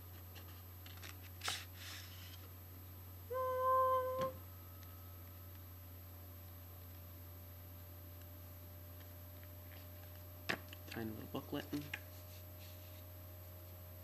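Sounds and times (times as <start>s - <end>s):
person humming a note: 3.3s - 4.4s.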